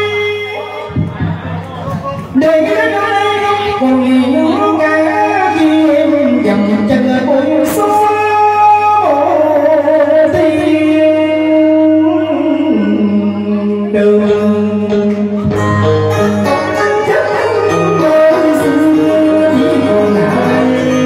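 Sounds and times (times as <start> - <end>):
person singing with live band: 0.0 - 21.0.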